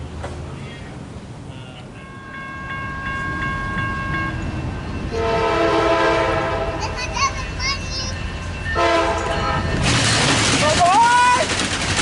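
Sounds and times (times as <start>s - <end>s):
bell ringing steadily: 1.9s - 5.7s, 6.9s - 10.0s
train air horn: 5.1s - 6.8s, 8.8s - 9.7s.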